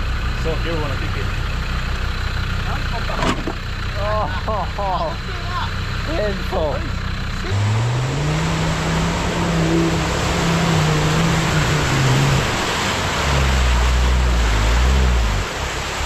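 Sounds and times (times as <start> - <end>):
engine revving hard: 6.0 - 16.0
mud and water churning: 7.4 - 16.0.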